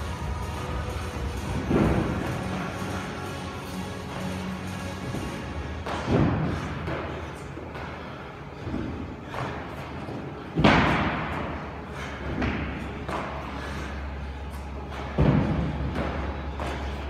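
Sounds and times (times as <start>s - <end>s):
quiet background music: 0.0s - 17.0s
heavy landing thuds: 0.2s - 2.8s, 5.0s - 13.4s, 14.9s - 17.0s.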